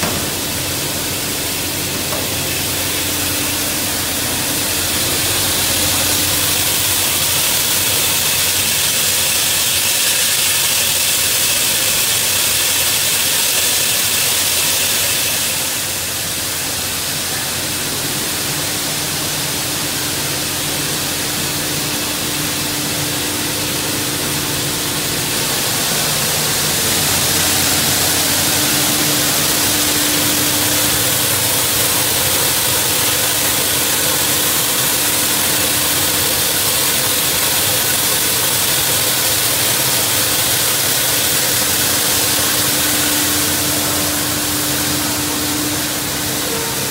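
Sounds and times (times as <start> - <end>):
industrial machinery running: 0.0 - 46.9.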